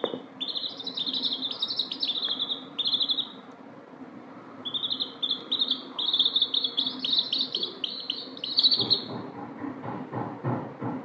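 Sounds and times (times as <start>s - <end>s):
chicks peeping: 0.0s - 3.5s, 4.6s - 9.4s.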